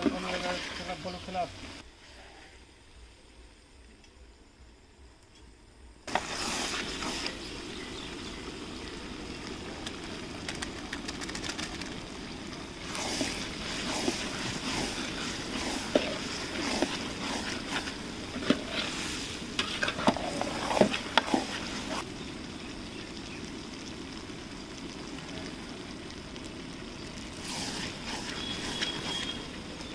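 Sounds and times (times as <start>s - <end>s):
meat sizzling in a pot: 6.1s - 29.9s.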